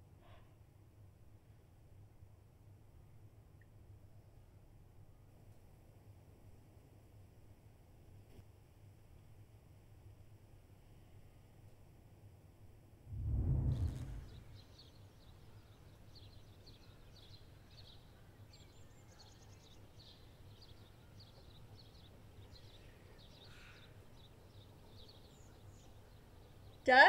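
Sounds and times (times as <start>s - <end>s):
low steady hum: 13.1s - 14.6s.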